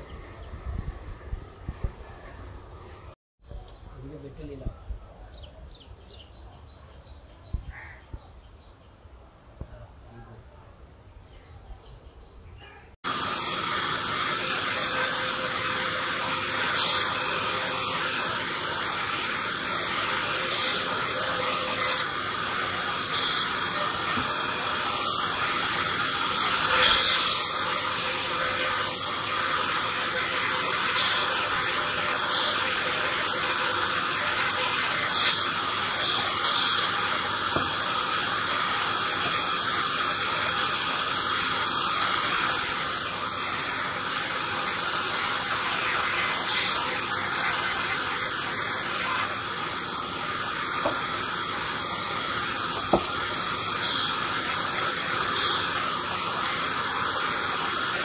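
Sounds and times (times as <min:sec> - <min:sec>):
band saw ripping log: 0:13.1 - 0:40.5, 0:41.2 - 0:49.4.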